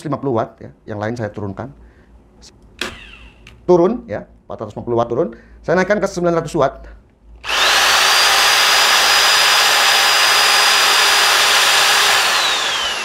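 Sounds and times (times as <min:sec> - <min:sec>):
electric mixer motor whine: 0:02.9 - 0:03.4, 0:07.4 - 0:13.0.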